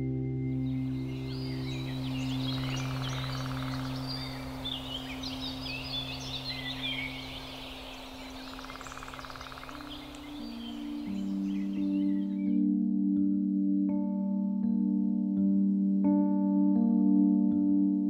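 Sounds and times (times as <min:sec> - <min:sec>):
low sustained music drone: 0:00.0 - 0:18.0
birds chirping and singing: 0:00.5 - 0:12.6.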